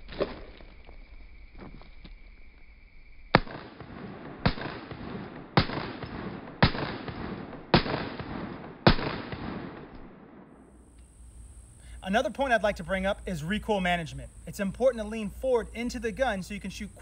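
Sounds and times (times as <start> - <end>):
pistol shots with echo: 3.4 - 10.5.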